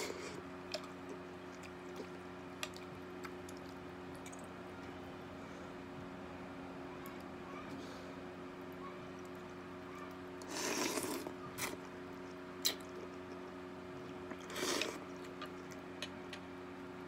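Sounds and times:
steady low hum: 0:00.0 - 0:17.0
noodles slurped: 0:10.4 - 0:16.4.

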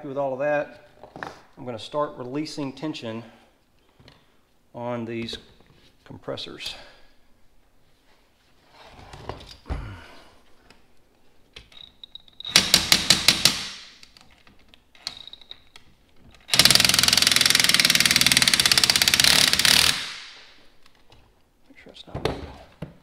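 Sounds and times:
impact wrench whine: 0:11.8 - 0:13.8, 0:16.5 - 0:20.6
impact wrench hammering: 0:12.4 - 0:14.0, 0:16.5 - 0:20.5.

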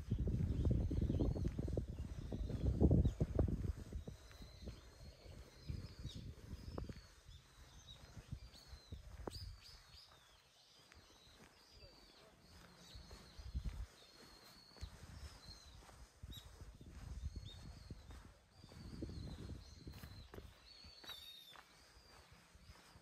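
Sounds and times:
small birds chirping: 0:00.0 - 0:23.0.

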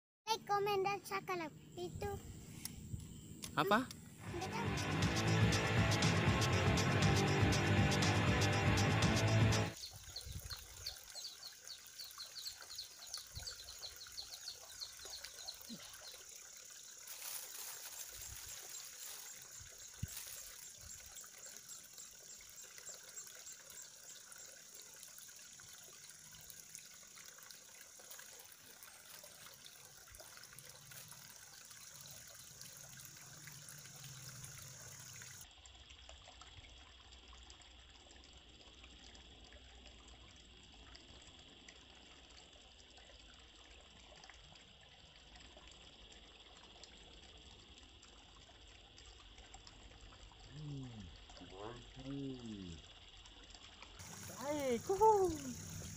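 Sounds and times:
soft water-like hiss: 0:10.1 - 0:35.4, 0:54.0 - 0:55.9.

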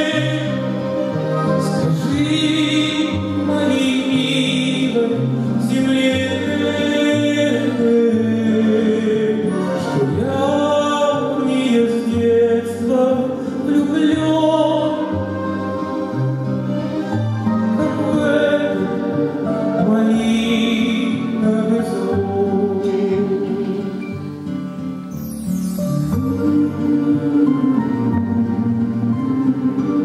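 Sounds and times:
man singing into a microphone: 0:00.0 - 0:15.5, 0:17.7 - 0:24.1
grand piano accompaniment: 0:00.0 - 0:30.0.

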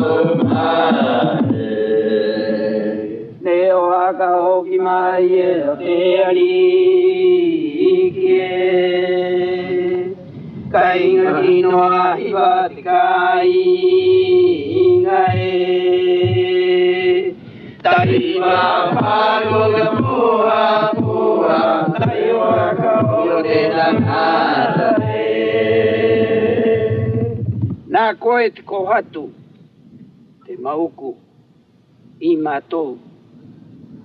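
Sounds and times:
voices chanting: 0:10.8 - 0:17.3, 0:17.9 - 0:27.3.

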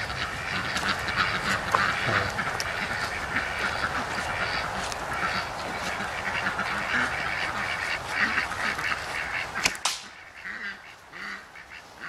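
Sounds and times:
birds calling: 0:00.0 - 0:12.0
bowstring snap: 0:09.6 - 0:10.1
arrow shot crack: 0:09.6 - 0:10.2.

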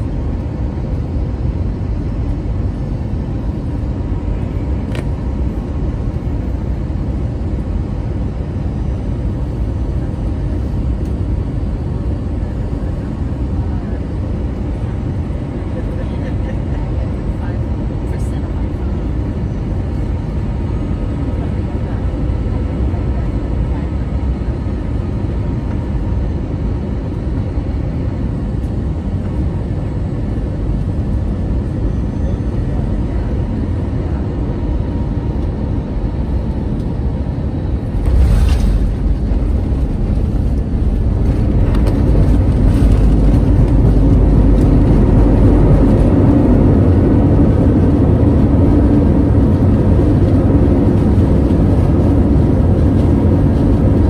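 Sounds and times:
airliner cabin rumble: 0:00.0 - 0:54.0
engine reverse thrust roar: 0:37.6 - 0:46.1.

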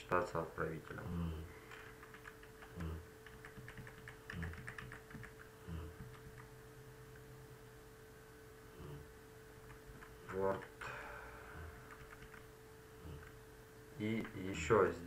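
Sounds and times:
faint steady hum: 0:00.0 - 0:15.0
keyboard keys clicking: 0:01.7 - 0:06.5, 0:11.8 - 0:12.5.

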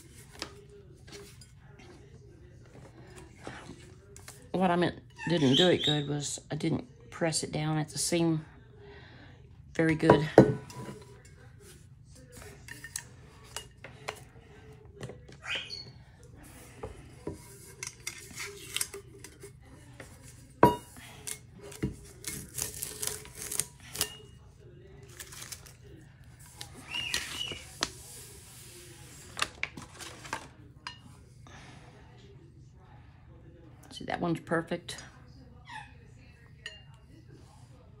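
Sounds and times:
tape and paper peeling and rustling: 0:22.0 - 0:24.0.

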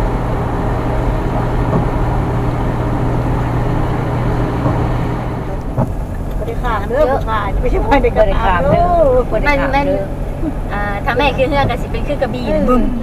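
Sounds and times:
truck engine hum: 0:00.0 - 0:13.0
tyres hissing on wet road: 0:00.0 - 0:13.0.

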